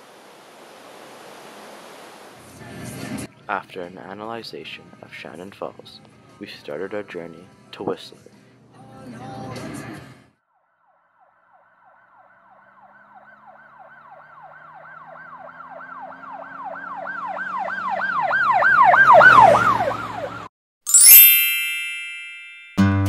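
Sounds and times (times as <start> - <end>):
siren yelping: 11.2 - 20.5.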